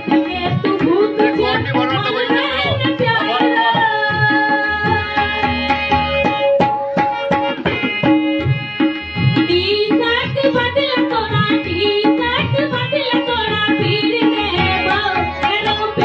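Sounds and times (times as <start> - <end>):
woman singing: 0.0 - 5.4, 9.4 - 16.0
hand drum beating quick rhythm: 0.0 - 16.0.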